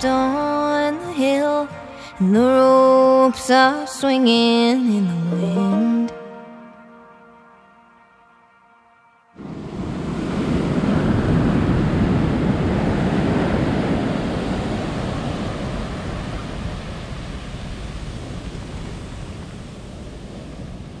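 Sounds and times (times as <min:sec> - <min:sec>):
waves breaking on a beach: 0:09.4 - 0:21.0.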